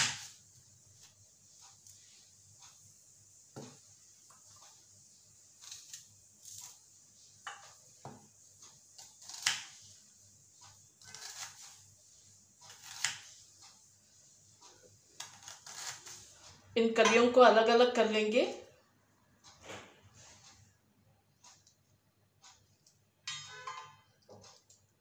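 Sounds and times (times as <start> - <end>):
knife slicing onion on board: 0.0 - 0.4, 5.6 - 6.8, 7.5 - 9.9, 11.0 - 11.8, 12.7 - 13.6, 15.2 - 16.3.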